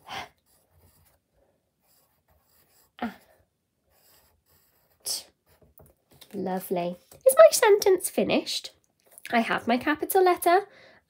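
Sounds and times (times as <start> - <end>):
pencil scratching on paper: 0.0 - 6.0.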